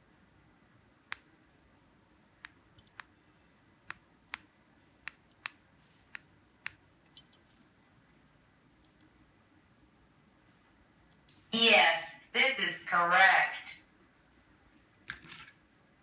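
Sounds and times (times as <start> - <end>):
remote control buttons clicking: 1.0 - 1.4, 2.4 - 3.2, 3.8 - 7.5.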